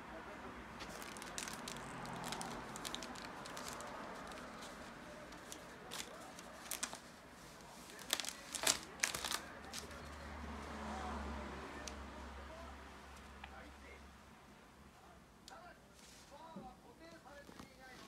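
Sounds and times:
foil balloon crinkling: 0.8s - 10.0s.

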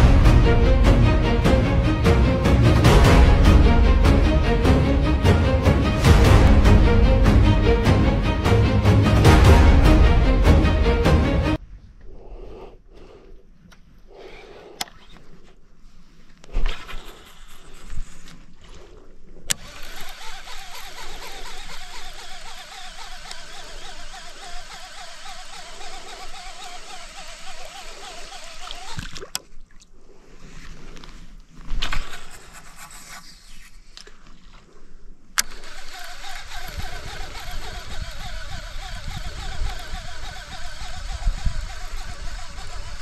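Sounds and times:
low rumble: 0.0s - 12.0s
outdoor ambience: 0.0s - 43.0s.

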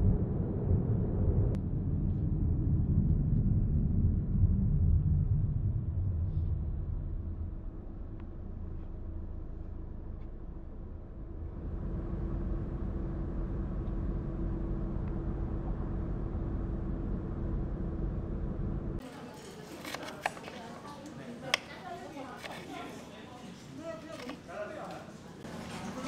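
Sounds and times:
bus engine hum: 5.1s - 19.0s.

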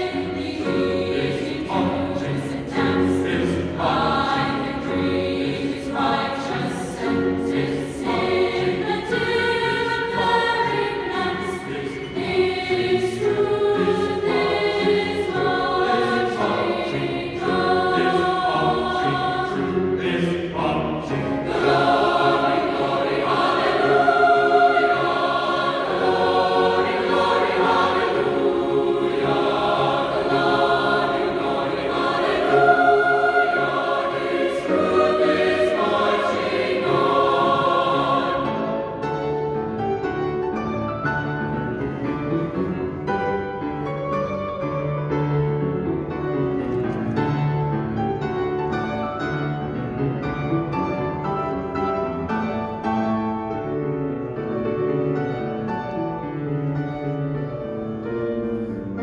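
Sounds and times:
mixed choir singing a hymn: 0.0s - 40.2s
piano accompaniment: 0.0s - 59.0s.

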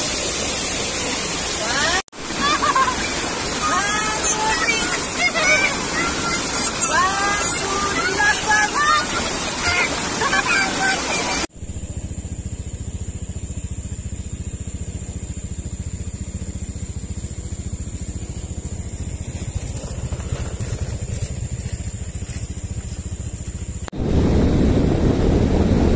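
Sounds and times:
engine idling: 11.5s - 25.9s
rushing noise: 24.0s - 25.9s.

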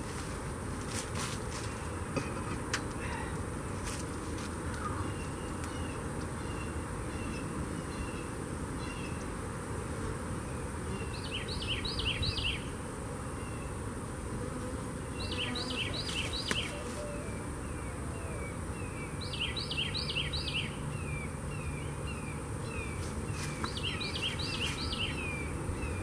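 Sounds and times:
honeybees buzzing: 0.0s - 26.0s
songbird chirping: 10.9s - 12.7s, 15.1s - 26.0s.

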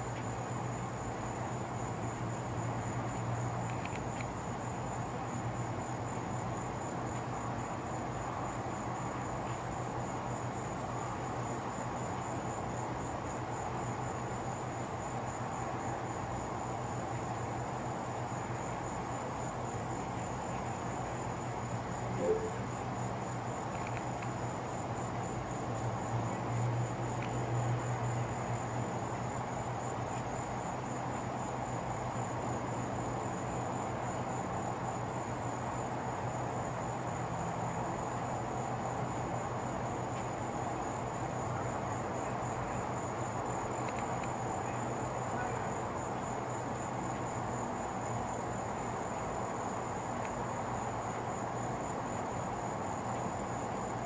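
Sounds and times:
constant low hum: 0.0s - 25.4s
crickets trilling: 0.0s - 54.0s.

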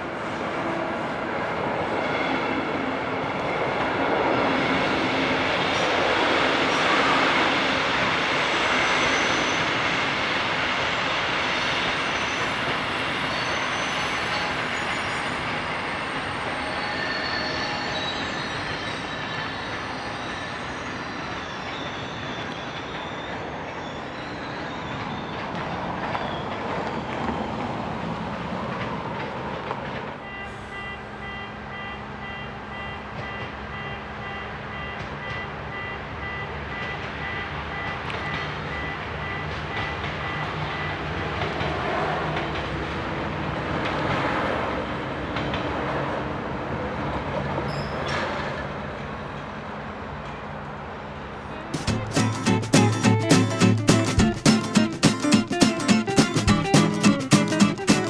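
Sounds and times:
train wheels rolling on rails: 0.0s - 30.7s, 33.0s - 58.0s
high wheel squeal: 6.6s - 27.4s, 47.6s - 48.4s.

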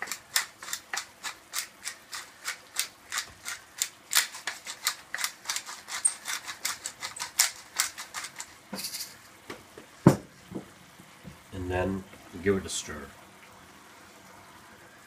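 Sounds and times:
pepper mill grinding clicks: 0.0s - 9.2s.

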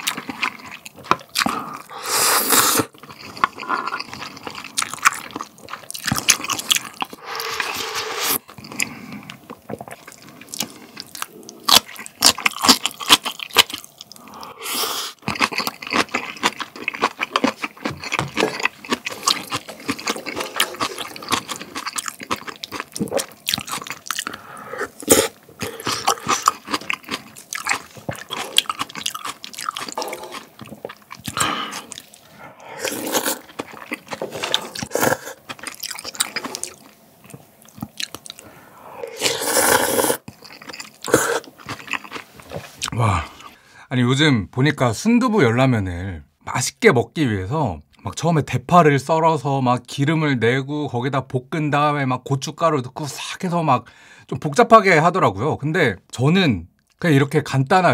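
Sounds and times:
chewing: 0.0s - 1.9s, 2.8s - 14.4s, 15.1s - 43.6s
slurping noodles: 1.4s - 5.3s, 6.1s - 12.1s, 18.4s - 36.9s, 38.3s - 43.6s
crunchy bites: 15.2s - 32.2s.

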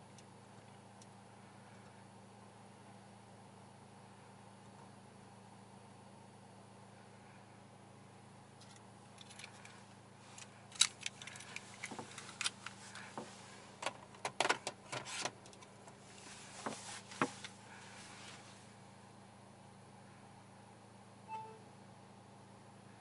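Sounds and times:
low steady hum: 0.0s - 23.0s
console controls clicking: 21.3s - 21.6s.

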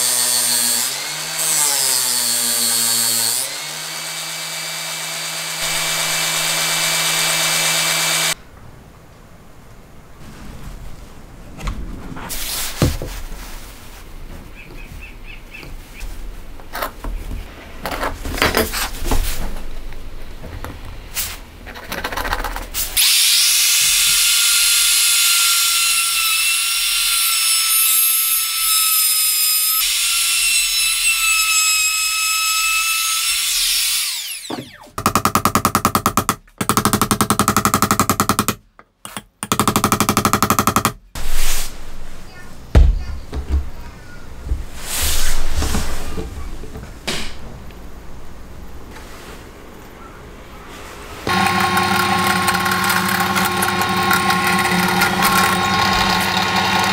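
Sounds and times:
router whining cutting wood: 0.0s - 8.4s, 23.0s - 34.9s, 51.3s - 56.9s
wood and tools knocking: 34.5s - 41.0s, 42.7s - 44.8s.

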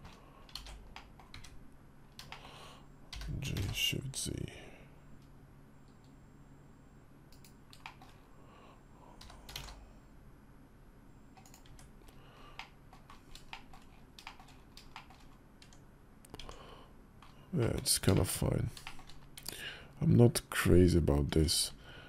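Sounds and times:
keyboard keystrokes: 7.3s - 8.2s, 12.6s - 16.6s.

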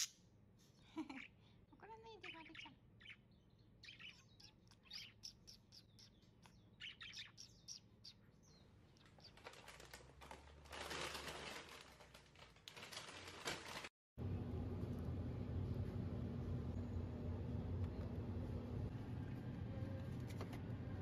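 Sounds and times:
budgerigar chirping: 2.1s - 8.6s.

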